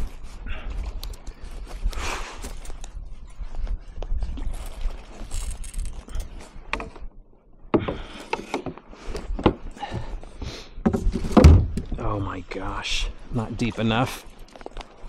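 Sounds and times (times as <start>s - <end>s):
knocks and clatter on a kayak: 7.7s - 10.2s, 10.8s - 12.0s.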